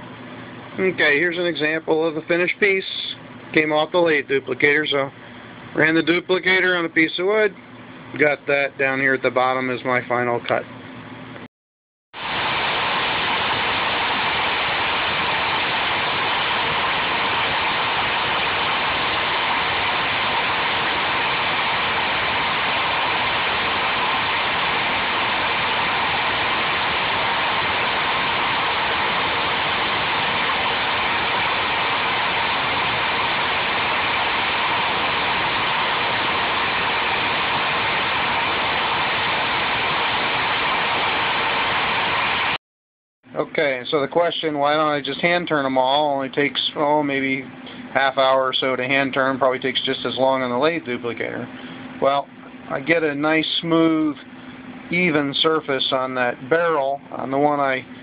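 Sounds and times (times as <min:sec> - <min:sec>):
lathe machine running: 0:12.2 - 0:42.6.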